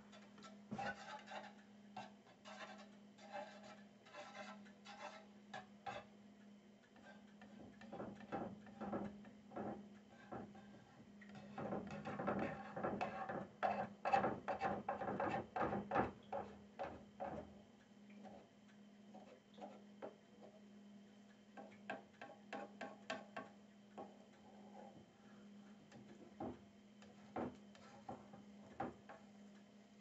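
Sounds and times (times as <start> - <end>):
fork scraping a frying pan: 0.0 - 6.1, 7.0 - 17.4, 19.1 - 19.9, 22.2 - 23.3
steady low hum: 15.8 - 30.0.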